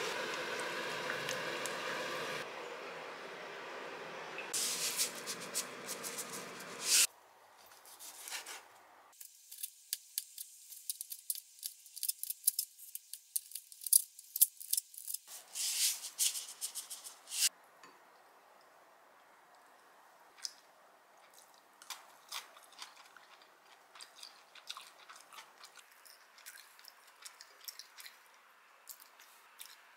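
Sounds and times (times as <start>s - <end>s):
steady hiss: 4.5s - 7.1s.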